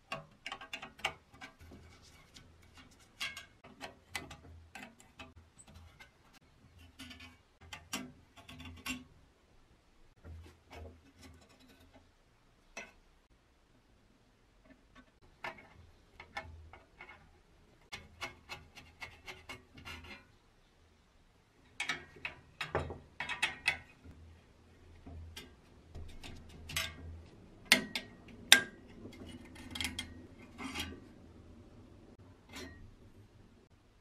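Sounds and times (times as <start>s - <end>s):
sharp metal knocks: 25.2s - 30.2s
metal tool clicks and scrapes: 27.7s - 31.1s.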